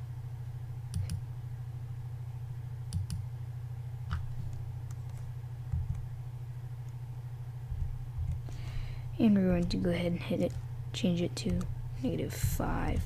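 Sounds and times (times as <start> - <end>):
low electrical hum: 0.0 - 13.0
computer mouse clicks: 0.9 - 1.2, 2.9 - 3.2, 4.1 - 6.0, 8.2 - 8.6, 10.4 - 10.6.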